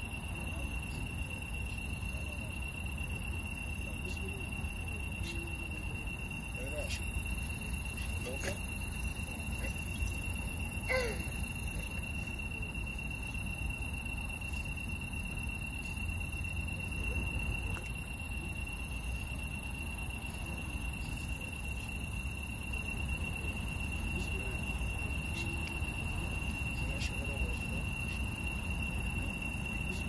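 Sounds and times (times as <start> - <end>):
crickets and insects singing: 0.0 - 30.0.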